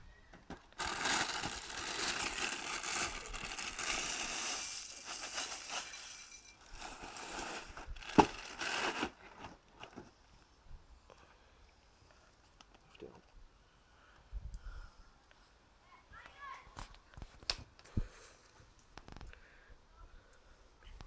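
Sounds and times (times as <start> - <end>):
cereal flakes pouring into bowl: 0.8 - 7.4
plastic bag crinkling: 0.8 - 9.6.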